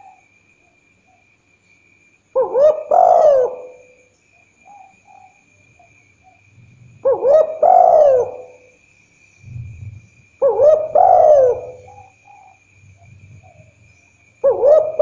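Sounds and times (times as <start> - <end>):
dove cooing: 2.4 - 4.1, 4.7 - 8.8, 9.4 - 13.8, 14.4 - 15.0.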